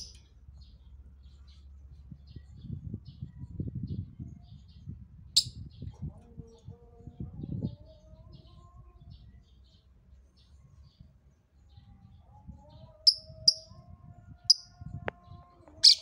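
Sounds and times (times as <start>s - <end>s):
bird chirping: 0.0s - 2.8s, 13.1s - 13.8s, 15.8s - 16.0s.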